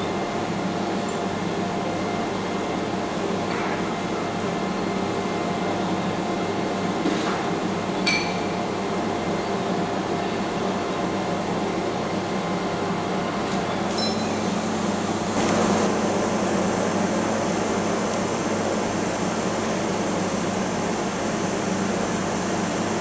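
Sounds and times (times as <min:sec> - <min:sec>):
ship machinery drone: 0:07.6 - 0:23.0.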